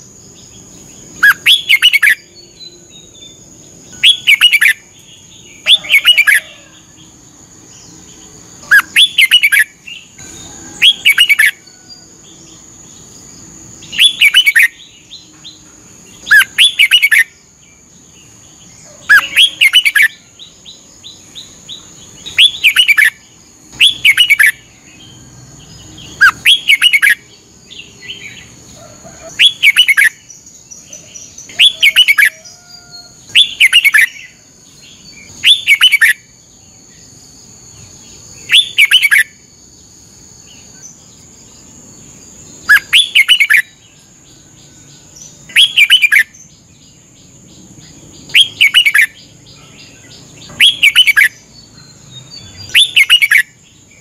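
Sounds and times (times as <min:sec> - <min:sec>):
bird singing whistled phrases: 0:01.2 - 0:02.8, 0:04.0 - 0:04.8, 0:08.7 - 0:09.7, 0:10.8 - 0:11.6, 0:14.0 - 0:14.8, 0:16.2 - 0:17.3, 0:19.1 - 0:20.2, 0:22.3 - 0:23.2, 0:23.8 - 0:24.6, 0:26.2 - 0:27.2, 0:29.4 - 0:30.2, 0:31.5 - 0:34.4, 0:35.3 - 0:36.2, 0:38.4 - 0:39.3, 0:42.7 - 0:43.8, 0:45.5 - 0:46.3, 0:48.3 - 0:49.2, 0:50.5 - 0:51.4, 0:52.4 - 0:53.5.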